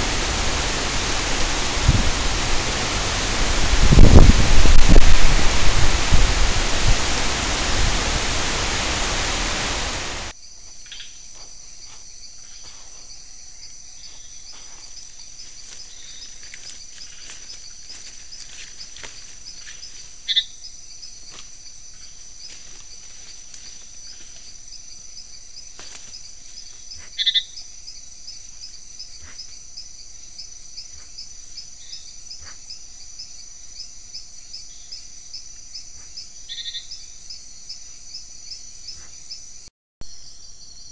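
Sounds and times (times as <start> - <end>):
wind and rain on microphone: 0.0 - 10.3
crickets trilling: 0.0 - 40.9.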